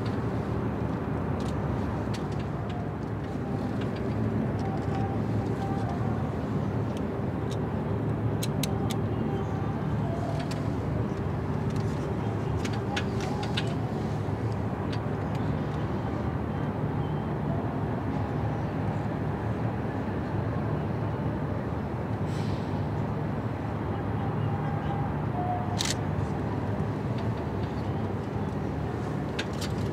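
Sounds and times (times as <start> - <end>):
low engine drone: 0.0 - 29.9.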